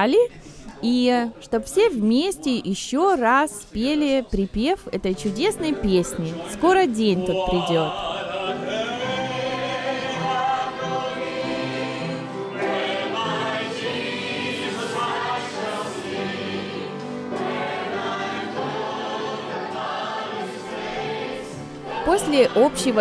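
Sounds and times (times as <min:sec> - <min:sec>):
choir and congregation singing hymn: 0:05.6 - 0:23.0.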